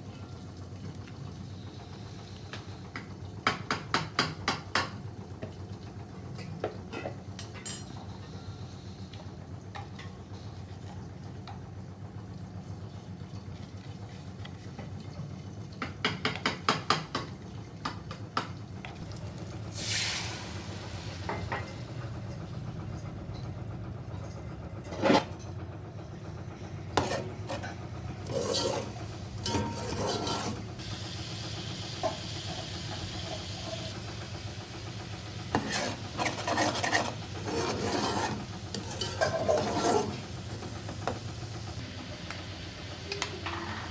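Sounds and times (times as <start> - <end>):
steady low hum: 18.7 - 43.9
food sizzling: 19.0 - 21.6, 28.2 - 43.9
spoon scraping a pot: 27.0 - 30.7, 35.5 - 40.2.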